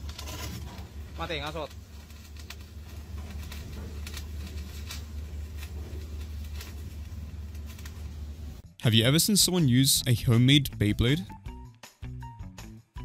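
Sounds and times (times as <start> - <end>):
steady low hum: 0.0 - 10.3.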